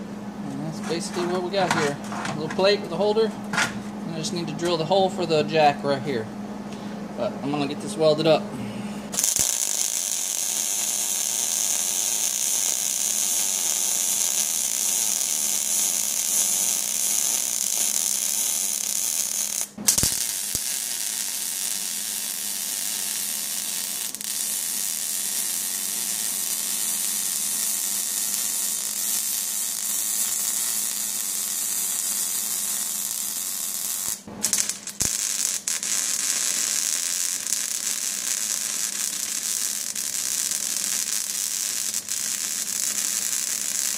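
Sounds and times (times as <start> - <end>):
welder arc crackling: 9.1 - 43.9.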